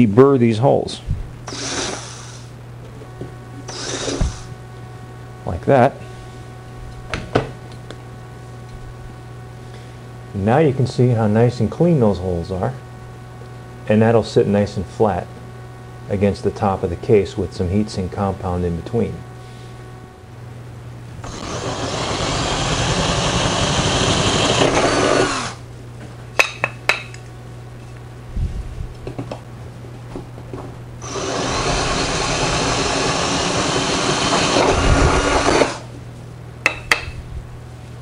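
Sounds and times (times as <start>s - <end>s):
electric drill cutting metal: 1.5s - 2.4s, 3.7s - 4.5s, 21.2s - 25.6s, 31.0s - 35.9s.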